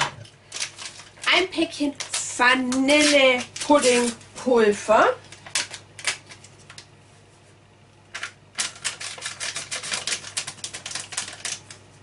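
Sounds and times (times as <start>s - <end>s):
paper packet crinkling: 0.4s - 4.2s, 5.3s - 6.8s, 8.2s - 12.0s.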